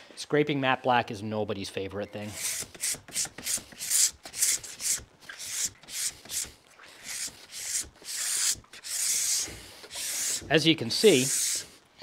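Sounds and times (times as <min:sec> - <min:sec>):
plastic scraper scraping ski base: 0:02.3 - 0:10.5.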